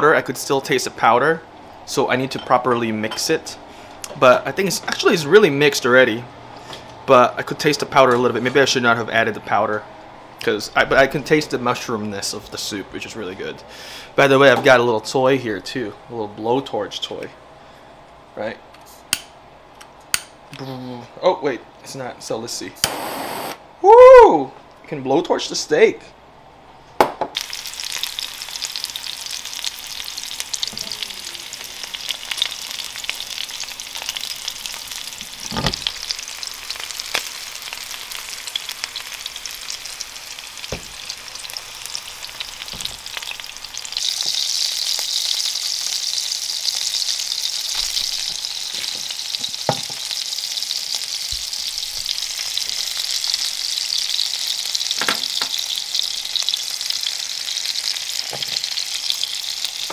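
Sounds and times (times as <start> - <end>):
steak sizzling in frying pan: 27.4 - 59.9.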